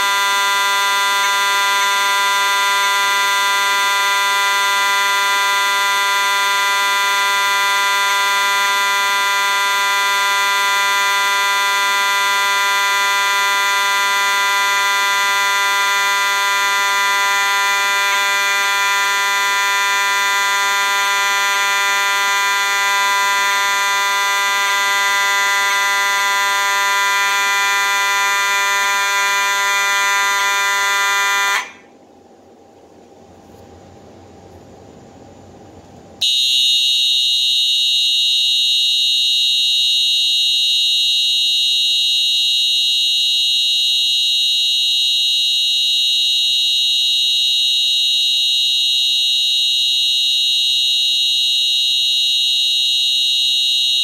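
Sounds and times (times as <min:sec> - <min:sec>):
fire alarm horn tone: 0:00.0 - 0:32.0, 0:36.2 - 0:54.0.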